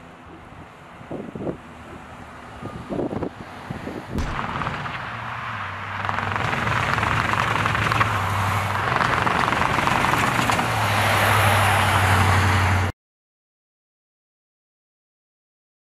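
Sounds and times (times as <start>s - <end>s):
tyre and road noise: 0.0s - 12.9s
pickup truck engine: 4.2s - 12.9s.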